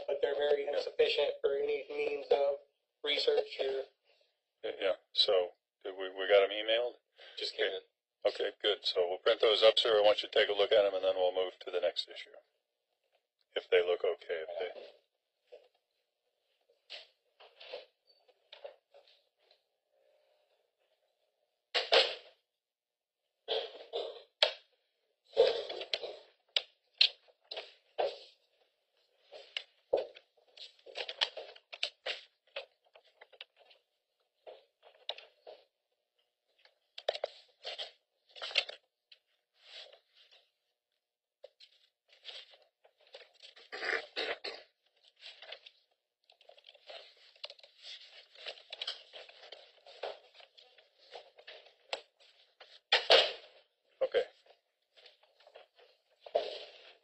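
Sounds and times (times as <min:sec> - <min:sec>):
paper rustling: 0:29.0 - 0:35.5, 0:36.6 - 0:40.4, 0:44.4 - 0:53.6.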